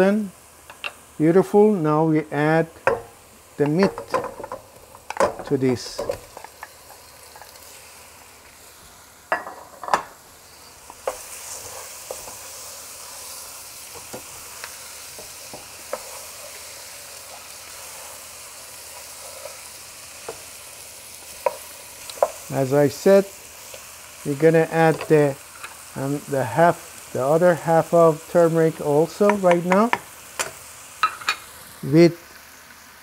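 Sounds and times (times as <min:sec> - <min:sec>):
meat sizzling in hot oil: 0:00.0 - 0:33.0
wooden spoon stirring: 0:11.0 - 0:20.6.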